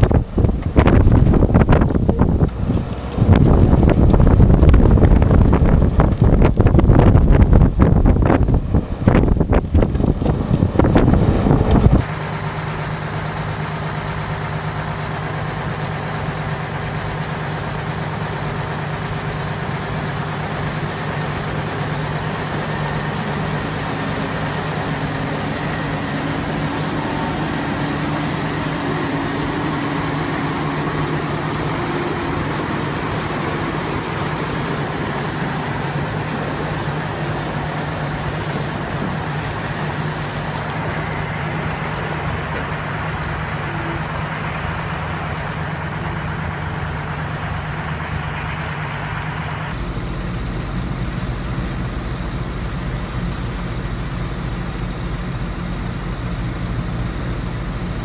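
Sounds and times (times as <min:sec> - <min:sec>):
wind noise on microphone: 0:00.0 - 0:12.1
truck engine running: 0:00.0 - 0:58.0.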